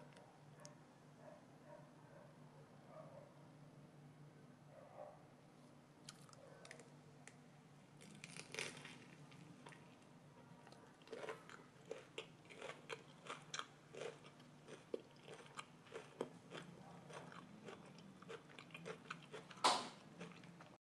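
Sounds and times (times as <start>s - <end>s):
person chewing crunchy food: 6.0s - 6.9s, 8.0s - 20.8s.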